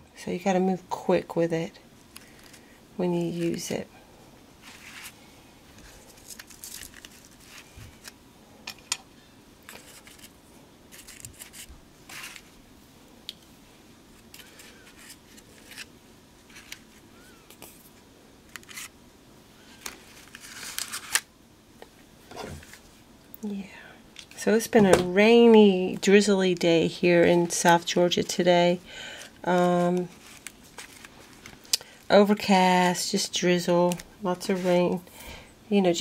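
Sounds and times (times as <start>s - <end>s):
paper rustling: 4.6s - 8.2s, 9.7s - 12.5s, 14.1s - 18.9s, 19.7s - 21.2s, 29.2s - 31.7s.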